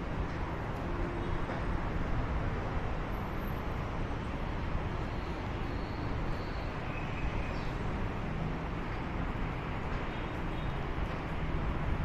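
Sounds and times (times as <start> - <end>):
outdoor ambience: 0.0 - 12.0
road traffic rumble: 0.0 - 12.0.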